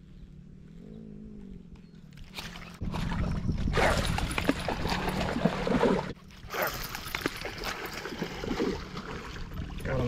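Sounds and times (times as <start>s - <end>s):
water splashing: 2.2s - 10.0s
wind rumbling on microphone: 2.7s - 6.2s.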